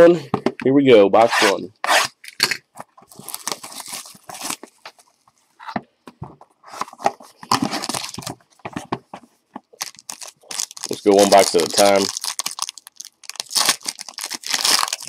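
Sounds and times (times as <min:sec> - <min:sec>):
foil wrapper crinkling: 0:03.1 - 0:05.3, 0:07.8 - 0:08.4, 0:09.7 - 0:15.0.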